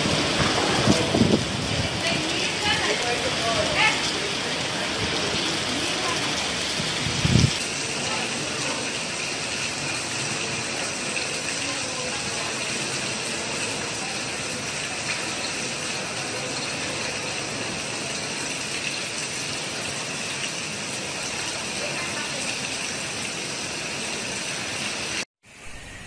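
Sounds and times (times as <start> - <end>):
strong wind: 0.0 - 7.6
heavy rain pouring: 0.0 - 26.0.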